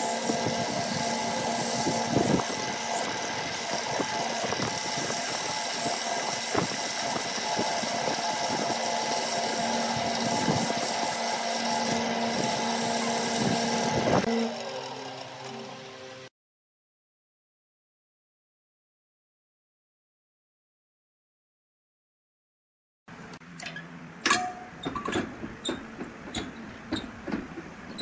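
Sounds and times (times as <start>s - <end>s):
sandpaper hissing on wood: 0.0s - 14.3s
lathe motor hum: 0.0s - 16.3s.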